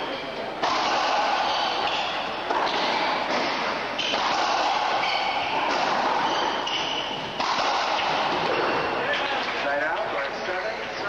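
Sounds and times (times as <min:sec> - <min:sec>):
shoes squeaking on court floor: 0:00.0 - 0:11.0
ball popping off racquets and walls: 0:00.6 - 0:09.5.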